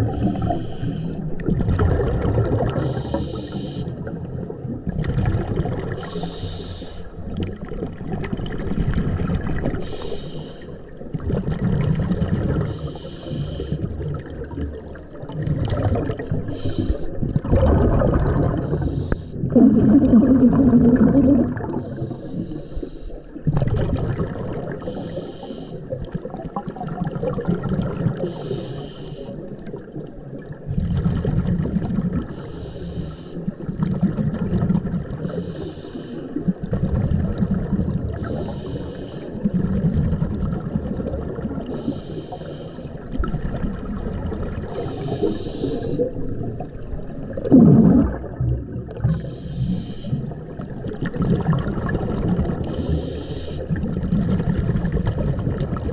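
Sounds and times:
exhaled air bubbling: 0.0 - 55.9
regulator breathing hiss: 0.1 - 1.2, 2.8 - 4.0, 6.0 - 7.1, 9.8 - 10.8, 12.7 - 13.9, 16.5 - 17.2, 18.6 - 19.4, 21.8 - 23.2, 24.8 - 25.9, 28.2 - 29.4, 32.3 - 33.6, 35.2 - 36.4, 38.2 - 39.5, 41.7 - 43.0, 44.7 - 46.1, 49.1 - 50.4, 52.6 - 53.8.

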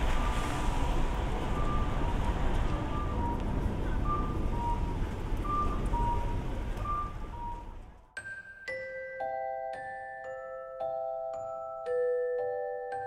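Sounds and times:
street noise: 0.0 - 8.2.

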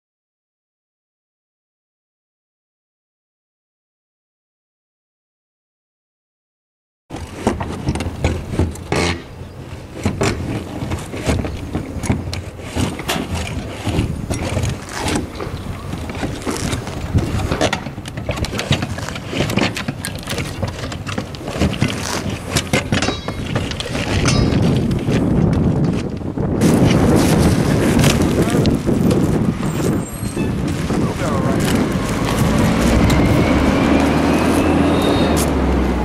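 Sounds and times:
knocks and clatter: 7.1 - 9.3, 10.0 - 29.4
shovels scraping shingles: 7.1 - 35.7
steady low rumble: 22.9 - 34.8.

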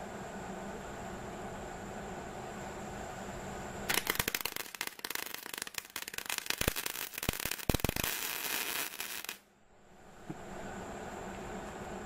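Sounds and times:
welding arc crackling: 3.9 - 9.4.

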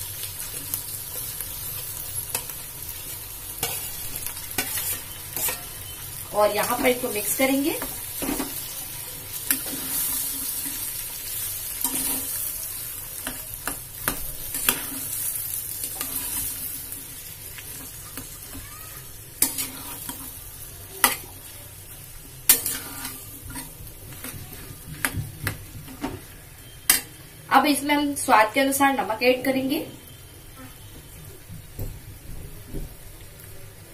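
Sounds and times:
oil sizzling: 0.0 - 33.9
spatula scraping a pan: 3.6 - 6.0, 9.4 - 12.6, 13.2 - 20.4, 22.5 - 25.2.

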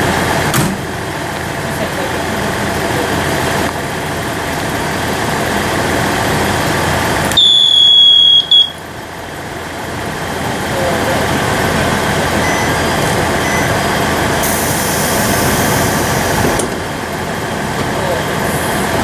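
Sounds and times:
diesel engine idling: 0.0 - 19.0.

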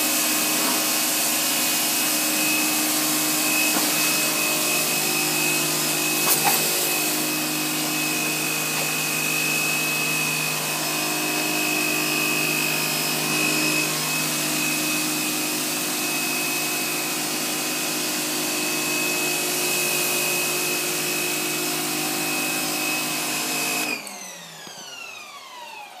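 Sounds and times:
pressure washer whining: 0.0 - 26.0
water spray hitting concrete: 0.5 - 9.9.

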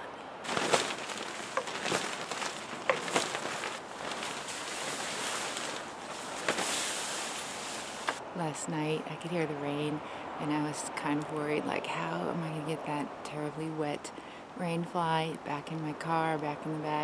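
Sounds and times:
fabric crackles: 0.4 - 8.2
wet tent fabric rustling: 0.4 - 8.2.

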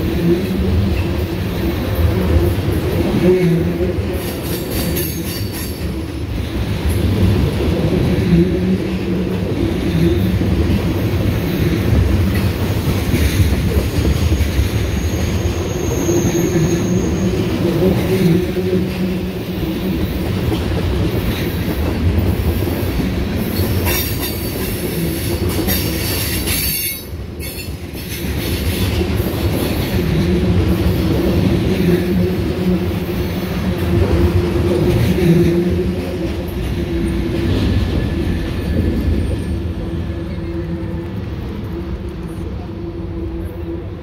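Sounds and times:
train wheels rumbling over rails: 0.0 - 44.0
wheels squealing whine: 14.2 - 18.1.

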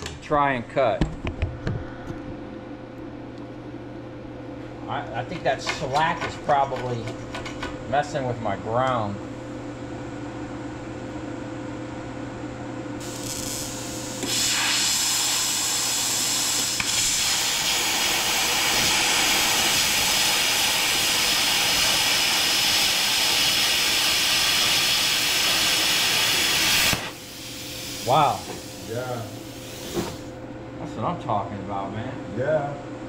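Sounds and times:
plasma cutter hissing: 13.0 - 30.3.

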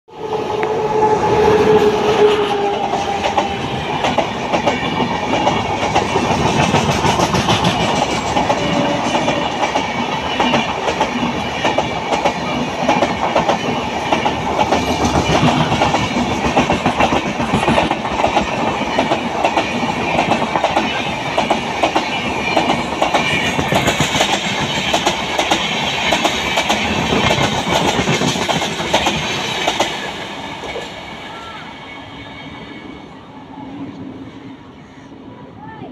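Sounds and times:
train horn: 0.1 - 3.8, 8.5 - 9.5
train wheels clattering on rails: 1.3 - 31.2.

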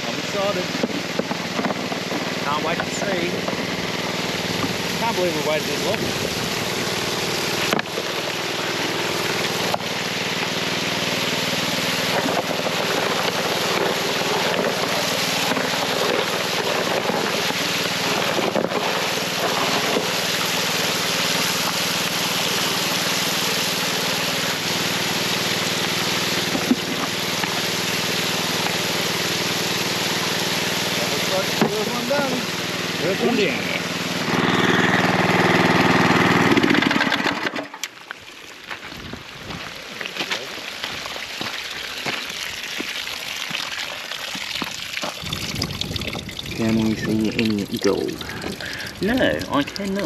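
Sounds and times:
water gushing through gravel: 0.0 - 50.0
water pump engine running: 0.0 - 50.0
knocks of buckets: 12.0 - 20.6, 26.4 - 27.8, 31.2 - 32.1.

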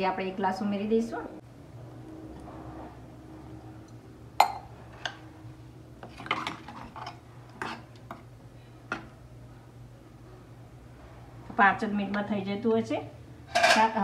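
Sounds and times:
ladle scraping pot: 6.0 - 8.2.

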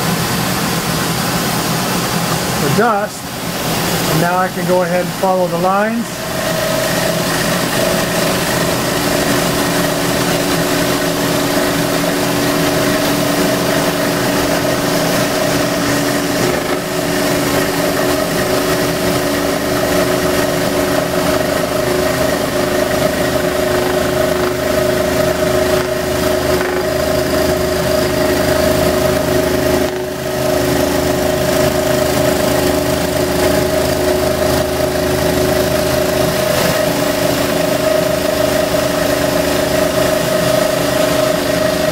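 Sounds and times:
scroll saw cutting wood: 22.1 - 33.3.

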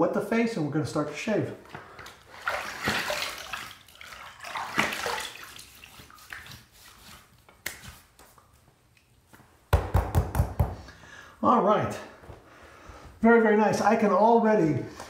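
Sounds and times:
water dripping: 2.0 - 6.6
water splashing from sink: 2.0 - 6.8.

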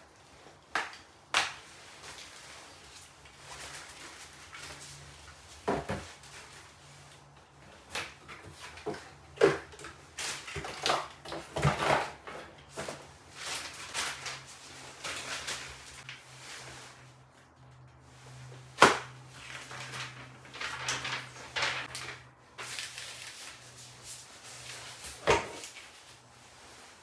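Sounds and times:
plastic bags rustling: 0.0 - 27.0
boxes and bags knocking and clattering: 5.6 - 6.3, 8.1 - 14.0, 25.1 - 25.8.

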